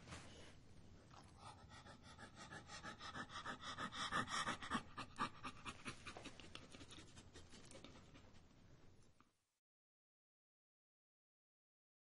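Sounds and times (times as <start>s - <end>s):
dog panting: 1.2s - 7.0s.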